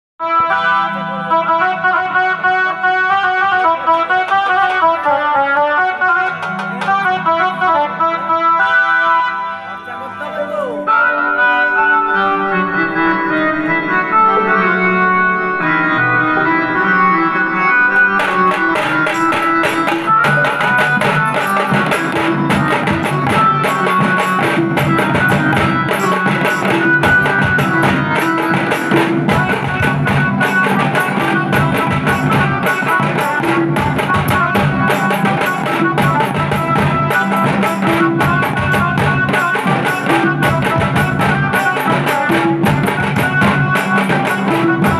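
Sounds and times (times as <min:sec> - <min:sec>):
electronic keyboard melody: 0:00.3 - 0:44.9
dhol and tasa drums beating: 0:01.4 - 0:07.9, 0:15.9 - 0:44.9.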